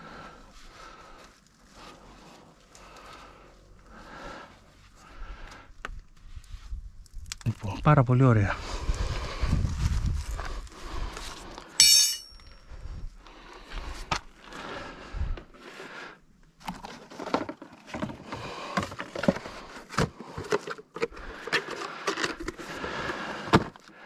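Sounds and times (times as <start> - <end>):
metallic clink: 11.8 - 12.6
tools clattering: 11.8 - 12.6.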